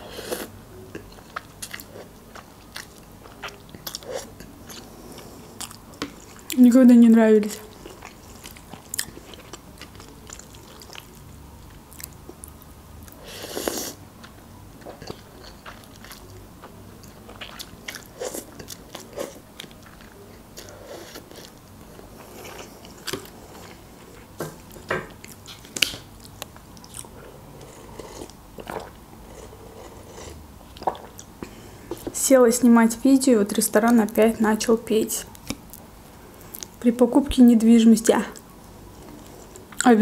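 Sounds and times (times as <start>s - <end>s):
chewing and slurping noodles: 7.6s - 11.2s, 11.9s - 23.9s.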